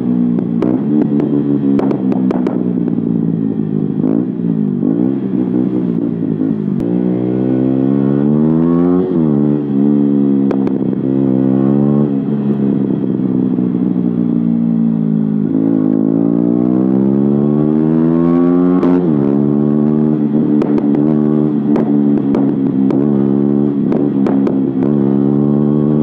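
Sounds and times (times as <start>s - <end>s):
motorcycle engine accelerating: 0.0s - 26.0s
exhaust pops: 0.4s - 3.1s, 20.4s - 25.1s.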